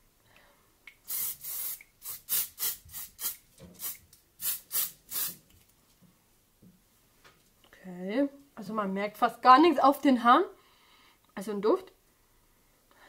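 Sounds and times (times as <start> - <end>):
aerosol can spraying: 1.0 - 5.4.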